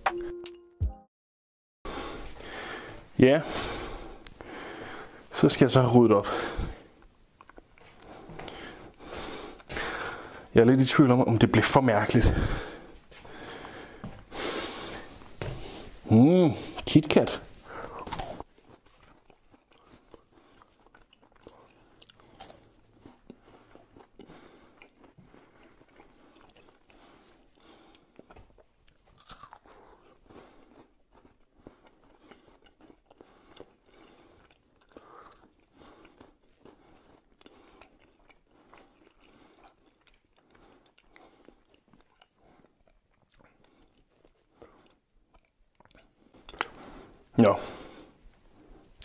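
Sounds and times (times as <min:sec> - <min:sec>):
person chewing crunchy wafer: 0:07.0 - 0:09.7, 0:17.6 - 0:47.2.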